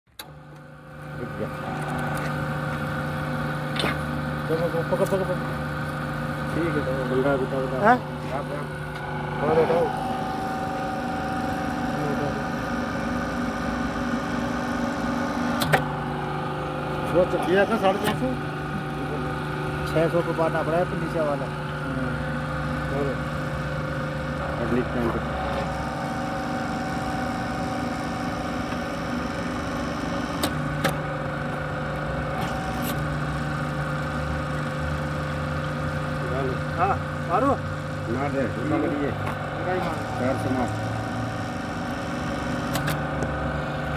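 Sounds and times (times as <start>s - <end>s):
hydraulic motor and pump hum: 0.1s - 43.9s
sharp click: 15.6s - 15.8s, 42.7s - 43.0s.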